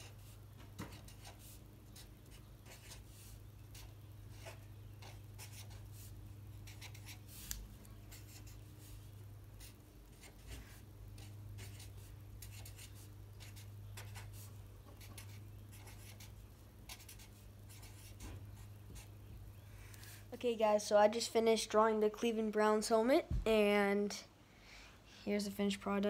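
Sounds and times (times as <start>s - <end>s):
marker scratching on paper: 0.0s - 19.2s
low steady hum: 0.0s - 26.0s.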